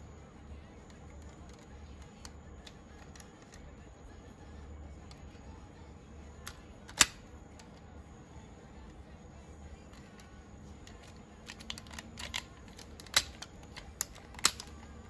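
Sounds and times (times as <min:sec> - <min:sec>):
loud plastic snap: 0:06.5 - 0:07.7, 0:10.9 - 0:14.9.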